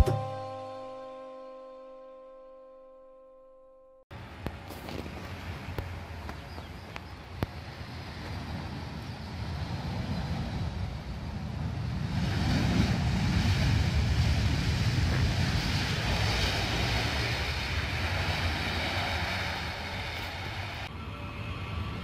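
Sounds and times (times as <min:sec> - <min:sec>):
wind buffeting the microphone: 0:04.4 - 0:20.8.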